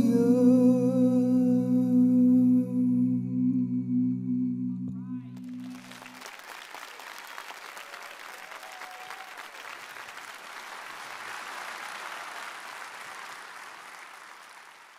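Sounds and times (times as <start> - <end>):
audience applauding: 5.4 - 14.9.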